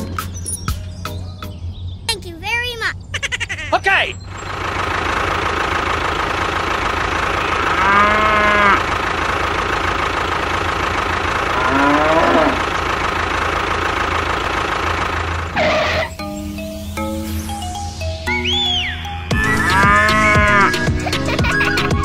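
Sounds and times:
tractor engine idling: 0:00.0 - 0:18.0, 0:18.7 - 0:22.0
cow mooing: 0:07.6 - 0:08.9, 0:11.5 - 0:12.6, 0:19.4 - 0:20.9.

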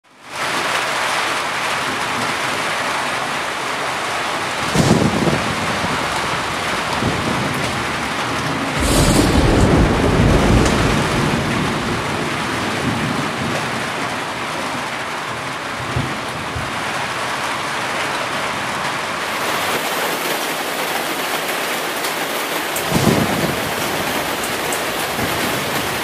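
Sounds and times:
heavy rain: 0:00.0 - 0:26.0
thunder rumble: 0:04.5 - 0:14.5, 0:22.9 - 0:26.0.

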